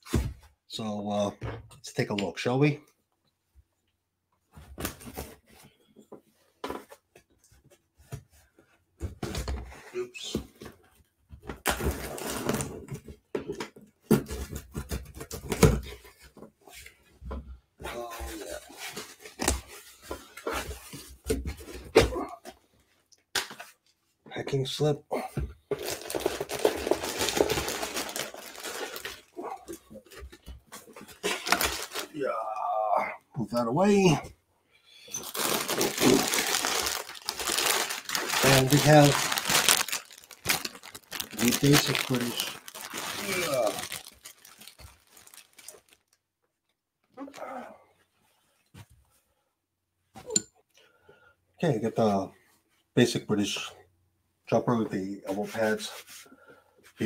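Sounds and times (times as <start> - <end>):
plastic packaging crinkling: 25.7 - 29.4, 31.1 - 32.2, 35.2 - 46.2.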